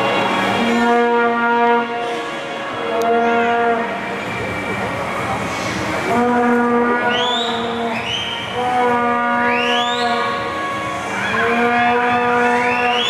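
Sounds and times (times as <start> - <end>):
crowd cheering: 0.0 - 0.8, 7.0 - 13.0
air horns blown in long notes: 0.0 - 4.6, 5.5 - 13.0.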